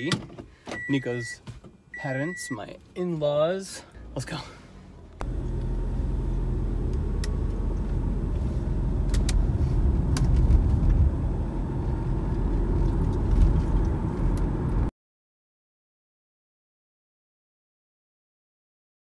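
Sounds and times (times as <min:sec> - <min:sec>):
road and engine rumble in car: 0:02.8 - 0:14.9.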